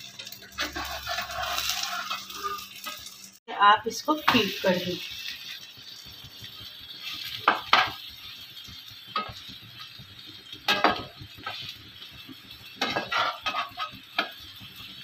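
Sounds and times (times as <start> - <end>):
spatula scraping a frying pan: 0.0 - 3.4, 7.0 - 8.4, 10.6 - 14.9
egg sizzling: 0.0 - 15.0.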